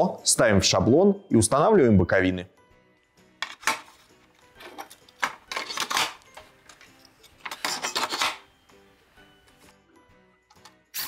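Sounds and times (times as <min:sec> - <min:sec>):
faint background music: 0:00.0 - 0:11.0
metal scraping and clattering on board: 0:04.6 - 0:08.4.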